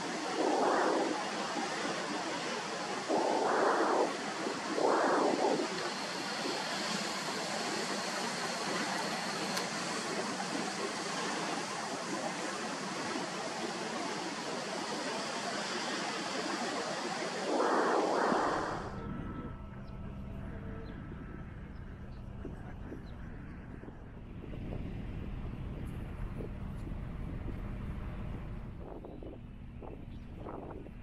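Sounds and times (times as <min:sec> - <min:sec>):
sea waves washing on shore: 0:00.0 - 0:19.0.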